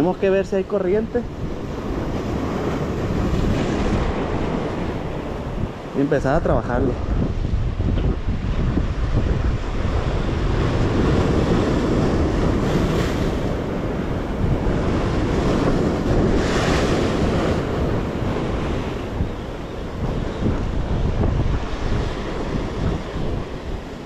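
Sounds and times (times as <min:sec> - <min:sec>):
surf crashing on rocks: 0:00.0 - 0:24.0
wind buffeting microphone: 0:00.0 - 0:24.0.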